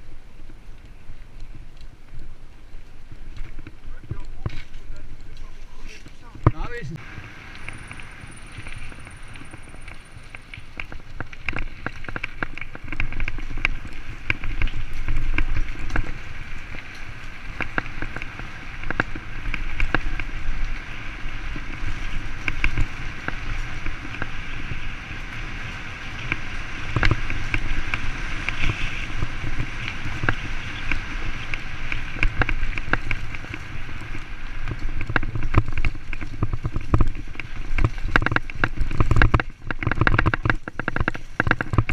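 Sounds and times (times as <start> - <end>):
bike clicking and rattling: 0.0 - 41.9
tyres rolling over tarmac and gravel: 0.0 - 41.9
wind on microphone: 10.8 - 41.9.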